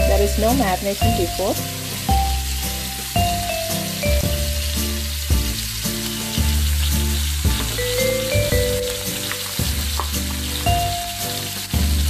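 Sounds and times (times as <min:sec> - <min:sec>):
background music of held notes: 0:00.0 - 0:12.0
chicken sizzling in a frying pan: 0:00.0 - 0:12.0.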